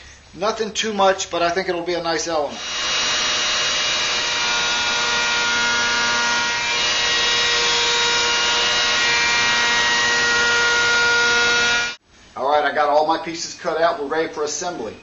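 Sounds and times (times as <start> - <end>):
router bit cutting wood: 2.6 - 12.0
router motor whine: 2.6 - 12.0.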